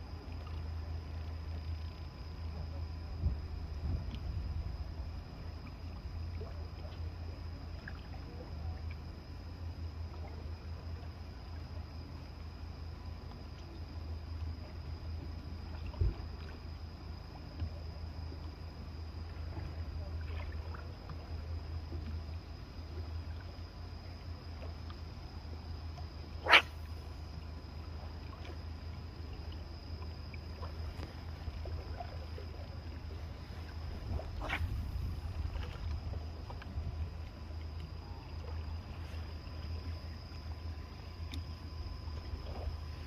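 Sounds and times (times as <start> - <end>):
thin high whine: 26.2 - 27.4
low rumble: 30.8 - 41.0.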